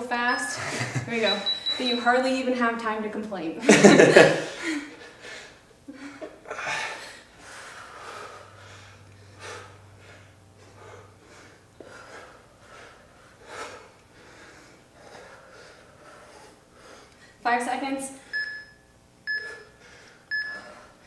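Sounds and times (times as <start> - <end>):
person breathing hard: 4.4 - 17.4.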